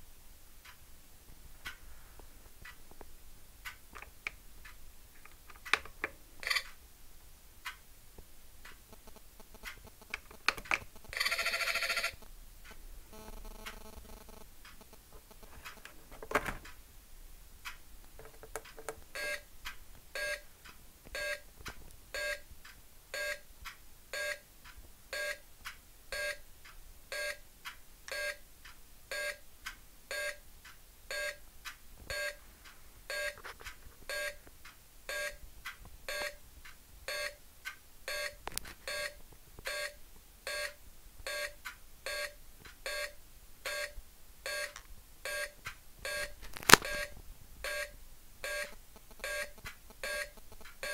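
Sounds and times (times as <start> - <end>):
steady electronic beeps: 37.1 - 37.4, 38.1 - 47.1, 47.7 - 50.9.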